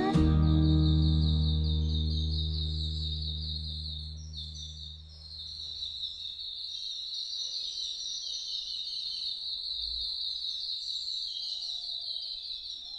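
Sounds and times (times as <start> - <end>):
background music: 0.0 - 4.9
high-pitched chirping chorus: 0.0 - 11.9.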